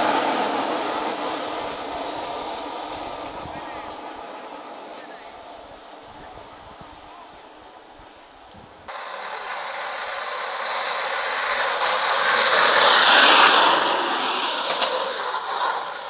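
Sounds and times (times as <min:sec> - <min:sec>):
wooden cart rolling on asphalt: 0:00.0 - 0:16.0.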